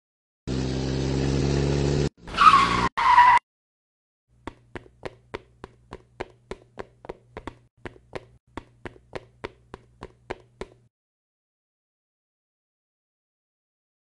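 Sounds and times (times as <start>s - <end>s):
light footstep taps: 4.4s - 10.9s.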